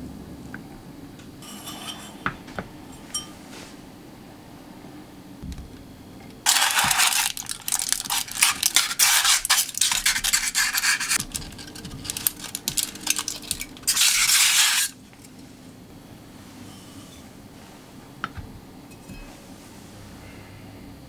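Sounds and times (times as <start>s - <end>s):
butter scraping inside pot: 1.4s - 2.2s, 6.5s - 15.0s
foil wrapper crinkling: 6.5s - 15.0s.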